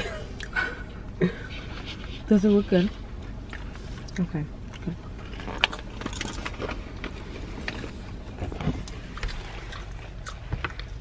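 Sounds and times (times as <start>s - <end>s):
car interior hum: 0.0s - 11.0s
popcorn crunching and rustling: 3.4s - 11.0s.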